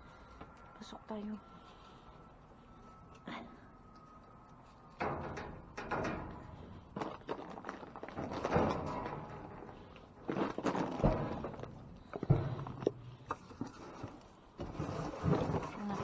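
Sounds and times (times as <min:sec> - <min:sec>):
knocks and footsteps: 0:03.9 - 0:15.8
trash bags and boxes rustling: 0:06.9 - 0:12.9.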